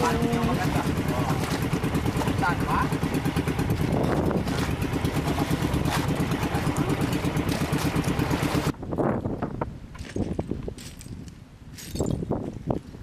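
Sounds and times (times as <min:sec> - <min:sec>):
boat engine chugging: 0:00.0 - 0:08.8.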